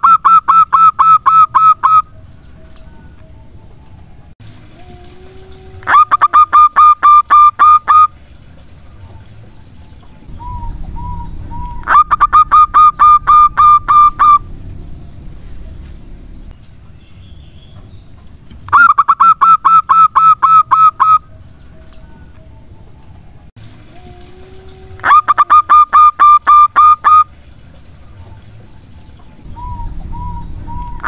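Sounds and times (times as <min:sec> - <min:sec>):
dove cooing: 0:04.7 - 0:08.2, 0:10.3 - 0:14.7, 0:23.9 - 0:27.3, 0:29.4 - 0:31.0.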